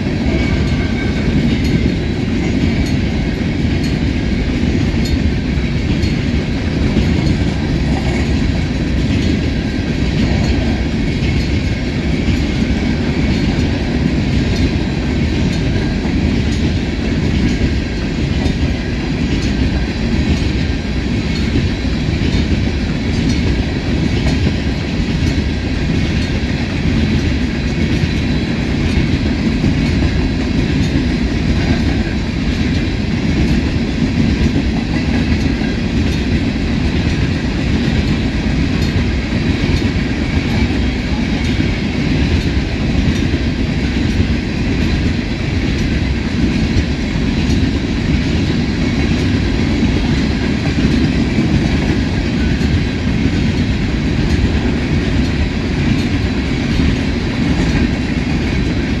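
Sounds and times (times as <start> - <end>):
train cars rumbling past: 0.0 - 59.0.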